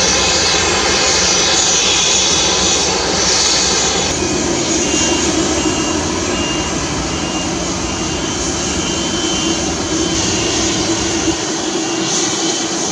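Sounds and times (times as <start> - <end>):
jet engines at low power: 0.0 - 12.9
faint high whine: 3.8 - 12.7.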